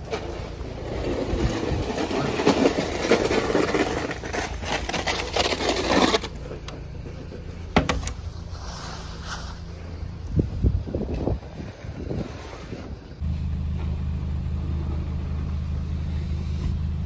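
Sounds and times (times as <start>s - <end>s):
snow shovel scraping concrete: 0.0s - 6.8s, 8.1s - 10.1s, 11.2s - 13.0s.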